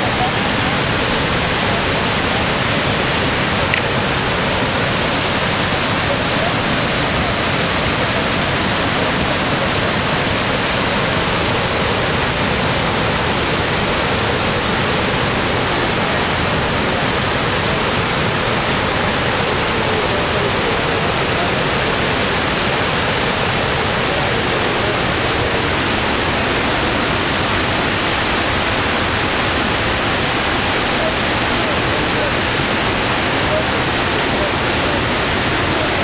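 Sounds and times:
waterfall rushing: 0.0s - 36.0s.

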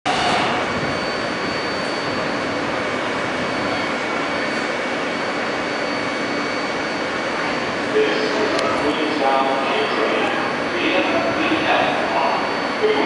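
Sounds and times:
high-pitched whine: 0.1s - 13.0s.

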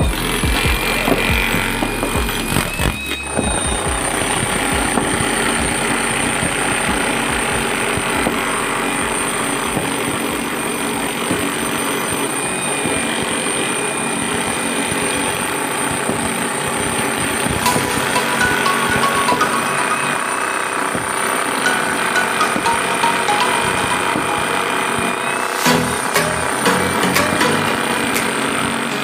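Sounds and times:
jackhammer chiselling concrete: 0.0s - 17.7s.

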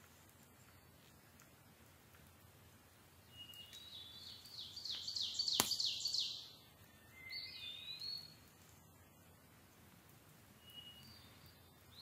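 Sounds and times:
background hiss: 0.0s - 12.0s
songbird singing: 0.4s - 1.2s, 3.1s - 9.0s, 10.4s - 12.0s.

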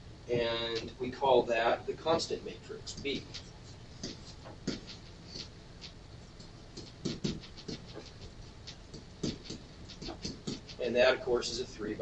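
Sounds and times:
pen tapping and sliding on whiteboard: 2.9s - 6.0s, 6.7s - 10.8s.

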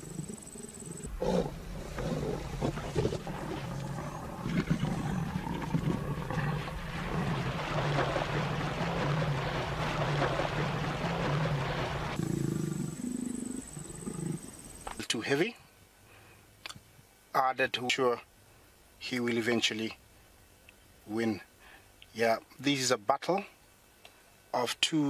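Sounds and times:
lions growling and snarling: 0.0s - 14.6s
splashing water: 1.5s - 12.2s.

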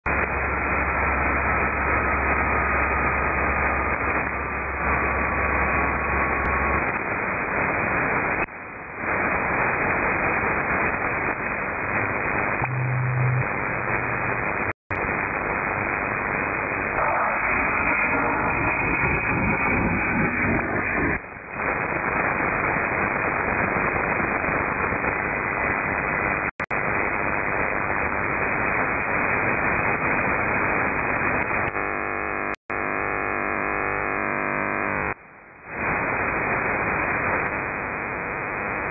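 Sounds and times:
radio static hiss: 0.1s - 38.9s
low hum: 11.6s - 21.2s.

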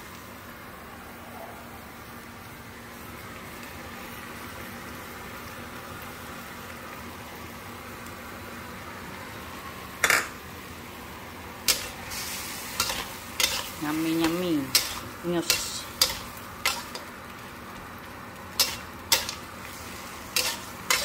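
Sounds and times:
stir-fry sizzling in a pan: 0.0s - 21.0s
metal utensil clanking on pan: 11.7s - 11.9s, 12.8s - 17.1s, 18.6s - 19.4s, 20.3s - 21.0s.

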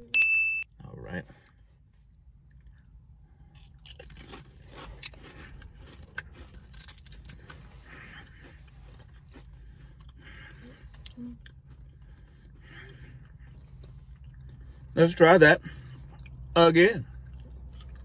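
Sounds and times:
low steady hum: 0.0s - 18.0s
soft chewing: 1.4s - 15.0s, 15.6s - 18.0s
people crunching potato crisps: 2.4s - 14.9s.

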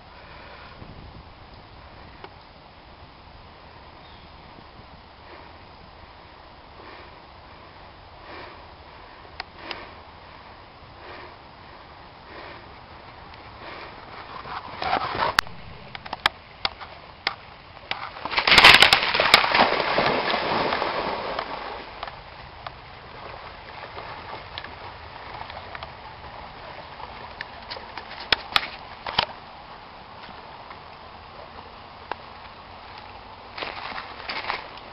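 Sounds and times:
dog splashing in water: 18.3s - 22.0s.

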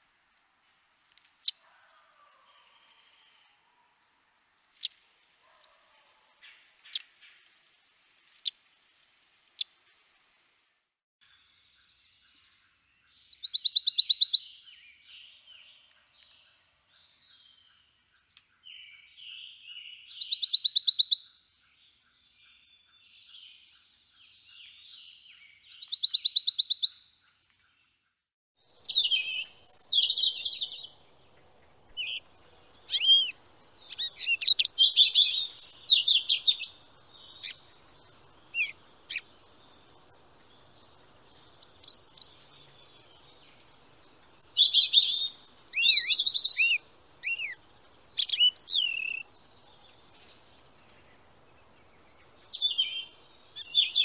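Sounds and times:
songbird chirps and whistles: 13.2s - 16.4s, 18.4s - 21.5s, 22.5s - 27.2s, 28.8s - 43.7s, 44.3s - 51.0s, 51.9s - 54.0s.

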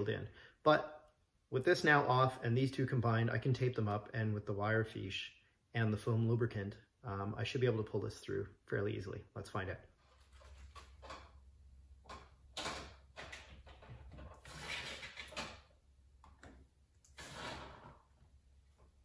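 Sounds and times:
wire scraping through rubber: 14.1s - 15.6s, 17.0s - 18.2s.

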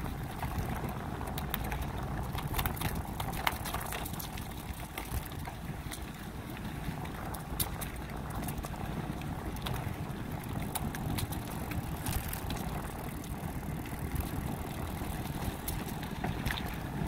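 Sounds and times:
bicycle tyres rolling on pavement: 0.0s - 17.0s.

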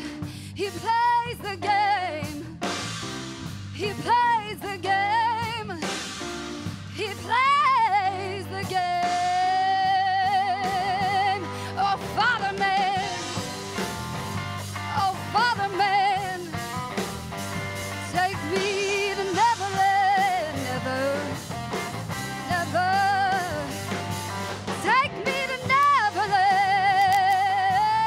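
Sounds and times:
woman singing with vibrato: 0.0s - 2.6s, 3.8s - 5.9s, 6.9s - 13.5s, 14.9s - 16.6s, 18.0s - 21.4s, 22.5s - 23.8s, 24.7s - 28.0s
electric bass guitar: 0.0s - 28.0s
rock band playing: 0.0s - 28.0s.

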